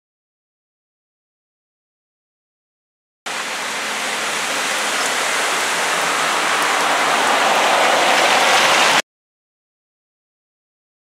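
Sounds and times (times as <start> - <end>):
heavy rain pouring: 3.3 - 9.0.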